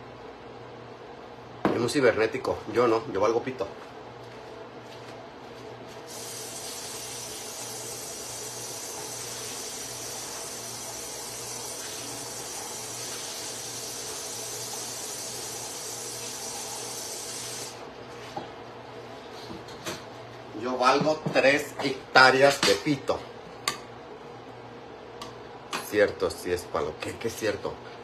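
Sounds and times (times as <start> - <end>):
steady hiss: 6.1 - 17.8.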